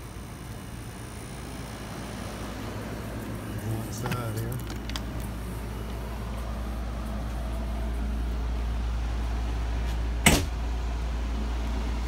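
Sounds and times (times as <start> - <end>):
steady low rumble: 0.0 - 12.0
sharp knock: 10.2 - 10.5.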